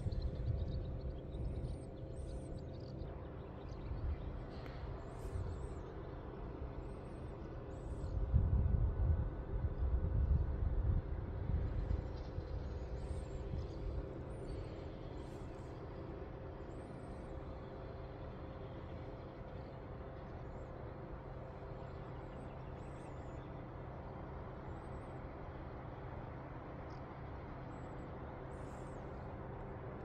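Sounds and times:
faint hum: 0.0s - 30.0s
low background rumble: 0.0s - 30.0s.

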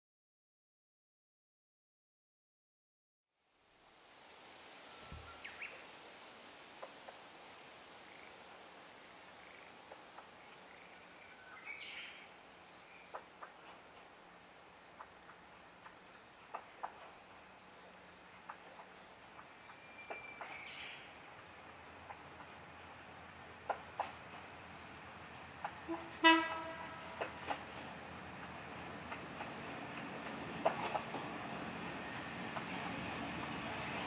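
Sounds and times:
diesel railcar rumble: 9.3s - 34.0s
woodland birds calling: 9.4s - 32.2s.

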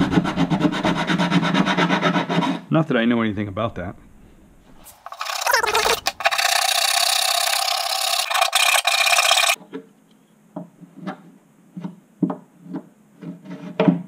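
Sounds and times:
hand file rasping on wood: 0.0s - 2.7s, 5.0s - 9.6s.

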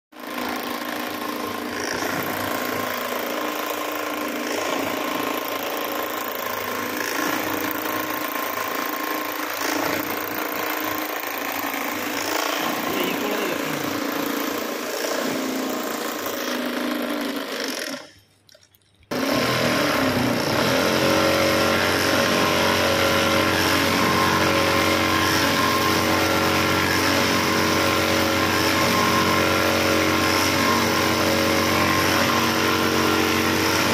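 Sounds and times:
industrial sewing machine running: 0.2s - 18.1s, 19.1s - 33.9s
machine hum: 9.6s - 15.8s.

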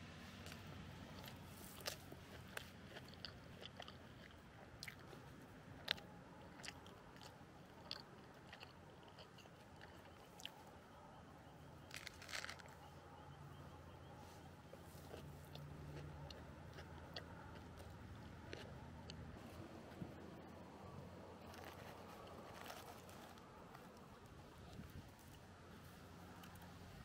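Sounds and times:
person chewing: 0.4s - 10.7s, 11.8s - 12.8s, 14.8s - 19.3s.

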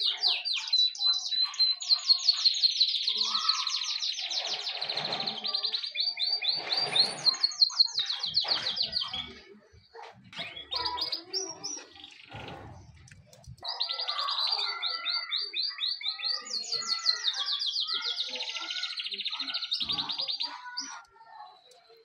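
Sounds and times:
canary singing trills: 0.0s - 22.0s.

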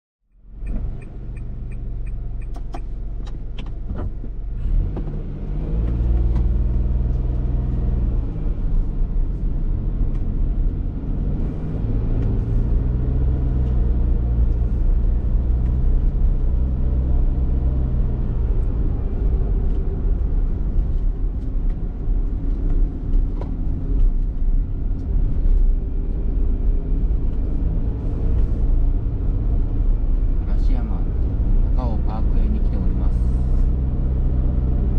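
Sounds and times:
road and tyre noise: 0.3s - 34.9s.

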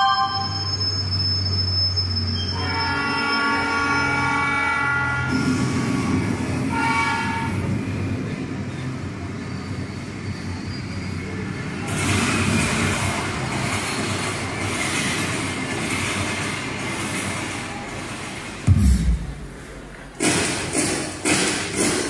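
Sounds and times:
train horn: 0.0s - 0.6s, 2.6s - 5.7s, 6.7s - 7.6s
train running rumble: 3.7s - 20.2s.

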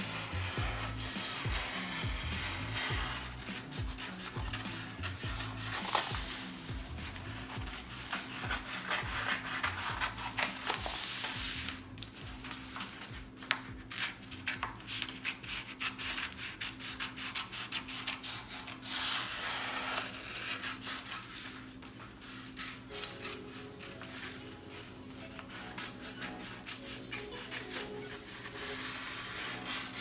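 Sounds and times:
paper sheet rustling: 0.0s - 15.7s.

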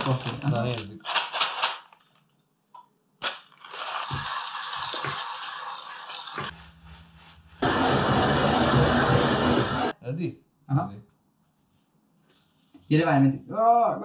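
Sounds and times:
hand coffee grinder grinding beans: 3.2s - 7.0s
coffee beans rattling: 3.5s - 6.5s
loud steady sound: 7.6s - 9.9s.

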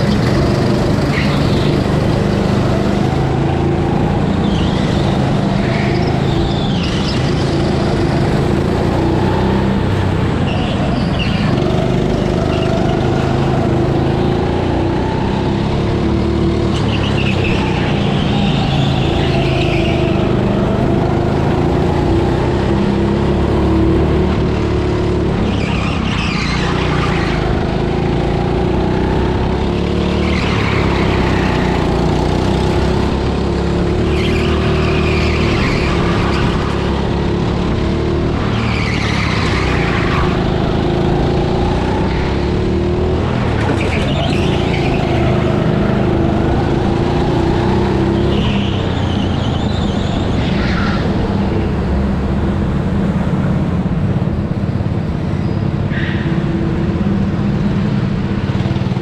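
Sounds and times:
go-kart motor running: 0.0s - 59.0s
tyres squealing: 29.7s - 32.6s, 38.4s - 42.5s, 43.3s - 46.7s, 47.7s - 51.9s.

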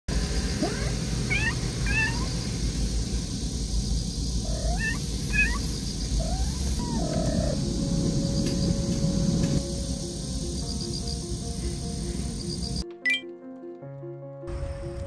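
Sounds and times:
steady low rumble: 0.1s - 12.8s
cat chirping meows: 0.6s - 2.4s, 4.4s - 7.6s.

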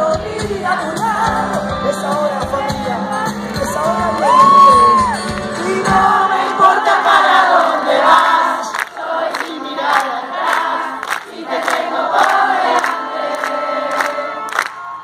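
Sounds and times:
live band playing: 0.0s - 6.4s
audience singing along: 0.0s - 15.0s.

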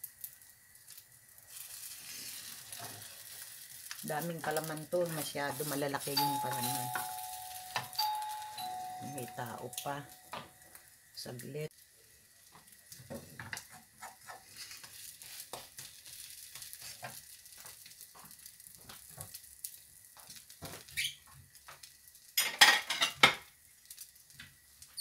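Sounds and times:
omelette sizzling in a skillet: 0.0s - 8.0s, 8.7s - 25.0s
dishes clattering: 22.4s - 23.4s.

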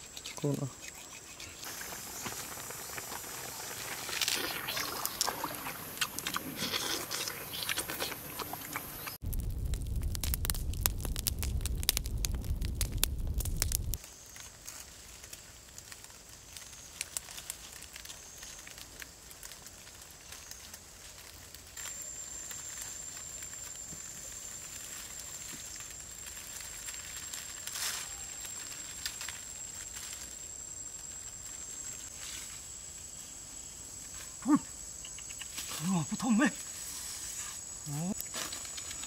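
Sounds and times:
dry leaves rustling: 9.0s - 33.0s, 35.6s - 39.0s.

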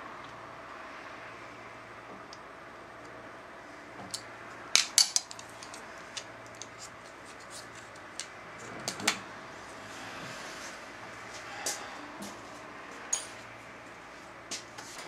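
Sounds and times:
metal parts clicking and clinking: 4.8s - 5.8s.

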